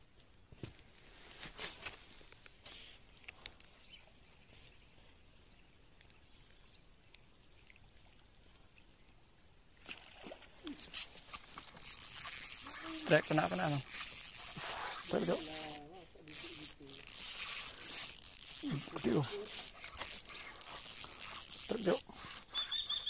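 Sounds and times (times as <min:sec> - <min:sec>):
small clicks: 0:10.8 - 0:23.0.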